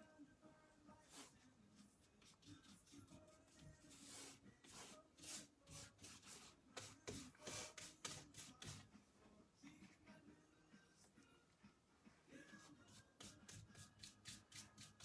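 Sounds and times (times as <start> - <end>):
paintbrush strokes: 1.0 - 8.8, 12.5 - 15.0.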